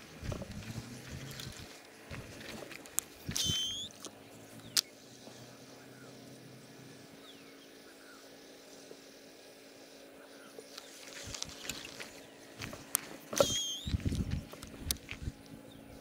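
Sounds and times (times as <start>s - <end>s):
fishing reel spool whirring: 0.0s - 4.1s, 10.8s - 15.4s
reel sharp click: 3.0s - 4.1s, 12.9s - 14.0s.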